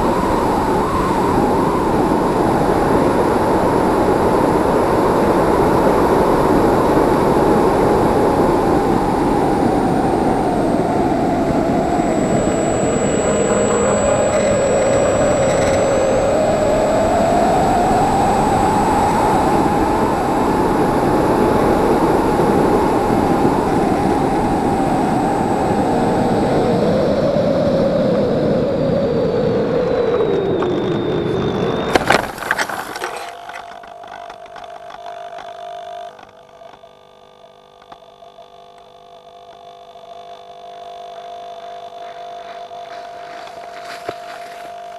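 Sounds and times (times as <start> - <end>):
plane landing in tall crop: 0.0 - 36.9, 40.3 - 44.9
electric motor whining: 0.0 - 44.9
faint steady hum: 0.0 - 44.9.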